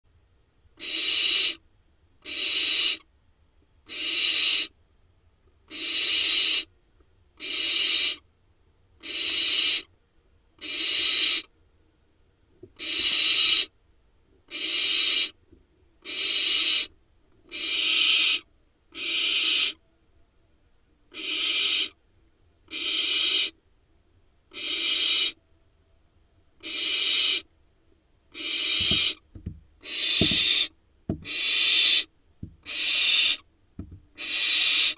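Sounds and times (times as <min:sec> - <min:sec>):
young owls hissing begging calls: 0:00.8 - 0:01.6, 0:02.2 - 0:03.1, 0:03.9 - 0:04.8, 0:05.7 - 0:06.7, 0:07.4 - 0:08.2, 0:09.0 - 0:09.9, 0:10.6 - 0:11.5, 0:12.8 - 0:13.7, 0:14.5 - 0:15.4, 0:16.0 - 0:16.9, 0:17.5 - 0:19.8, 0:21.1 - 0:22.0, 0:22.7 - 0:23.6, 0:24.5 - 0:25.4, 0:26.6 - 0:27.5, 0:28.3 - 0:33.5, 0:34.2 - 0:34.9
soft knocks: 0:28.9 - 0:31.3, 0:32.4 - 0:32.6, 0:33.8 - 0:34.1.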